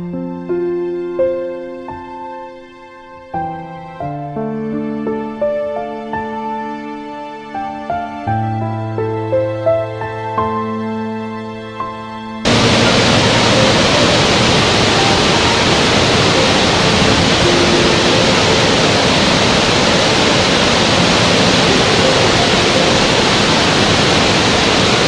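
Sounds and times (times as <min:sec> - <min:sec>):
waterfall rushing: 0:12.4 - 0:25.0.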